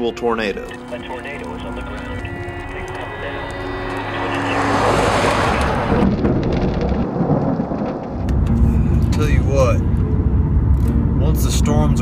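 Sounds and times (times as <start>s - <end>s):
soft background music: 0.0s - 5.6s, 8.5s - 12.0s
thunder rumbling: 0.8s - 12.0s.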